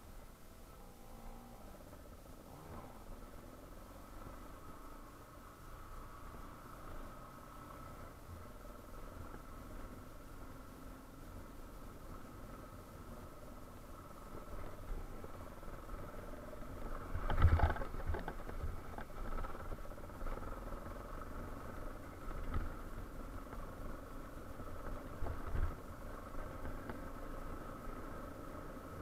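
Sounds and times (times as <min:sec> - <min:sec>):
motorcycle engine running at low revs: 0:00.0 - 0:29.0.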